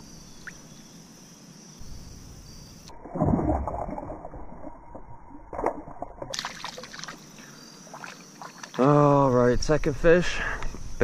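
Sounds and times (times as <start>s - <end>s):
water splashing: 2.9s - 7.3s, 7.9s - 9.0s
fish thrashing splash: 5.5s - 7.2s.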